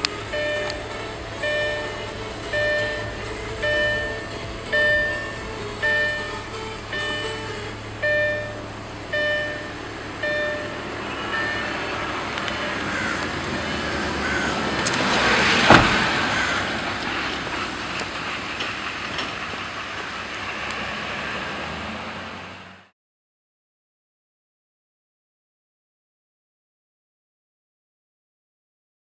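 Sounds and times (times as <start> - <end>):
short musical notes: 0.0 - 16.8
vehicle passing by: 0.0 - 22.9.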